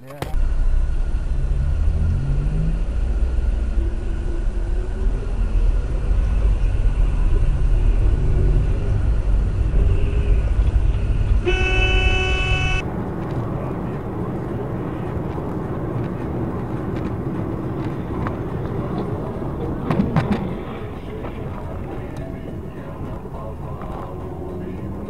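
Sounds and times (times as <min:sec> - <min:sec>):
car engine and tyres rumbling: 0:00.0 - 0:25.0
car horn blast: 0:11.4 - 0:12.9.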